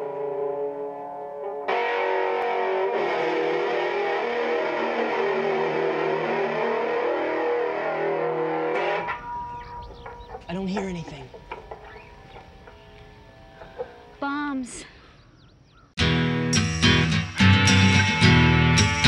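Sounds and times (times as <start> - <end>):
distorted electric guitar: 0.0 - 10.1, 16.0 - 19.0.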